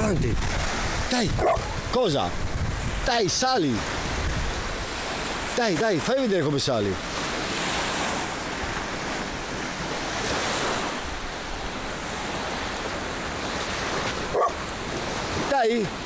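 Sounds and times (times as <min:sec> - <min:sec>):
wind on microphone: 0:00.0 - 0:05.6
sea surf washing onto beach: 0:00.0 - 0:16.0.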